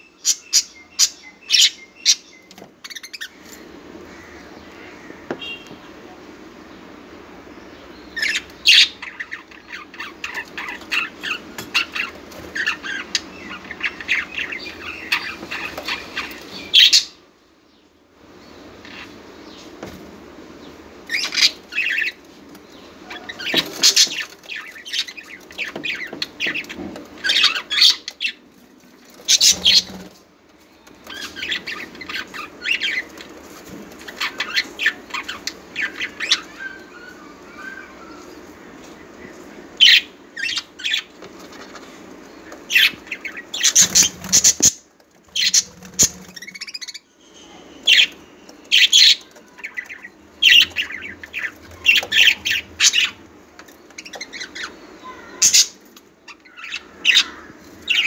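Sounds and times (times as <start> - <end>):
budgerigars chattering: 29.2 - 30.1, 42.6 - 47.1, 47.8 - 53.3, 53.9 - 58.0.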